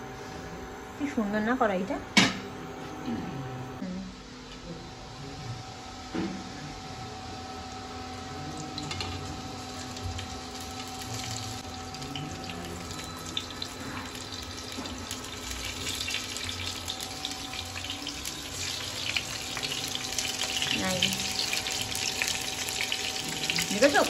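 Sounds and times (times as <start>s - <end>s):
hot oil sizzling and crackling: 8.4s - 24.0s.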